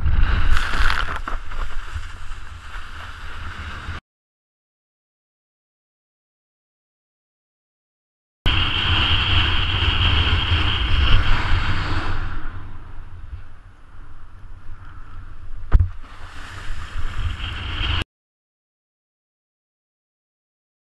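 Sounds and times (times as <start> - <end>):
wind buffeting microphone: 8.5 - 18.0.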